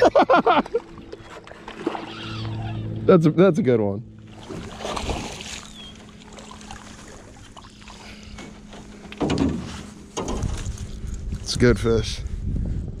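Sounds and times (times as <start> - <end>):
fish splashing at surface: 4.3 - 8.1
bump and rustle in boat: 4.3 - 11.4.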